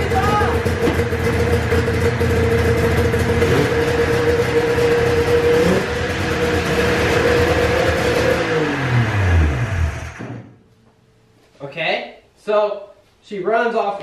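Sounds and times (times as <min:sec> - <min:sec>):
snowmobile engine running: 0:00.0 - 0:10.3.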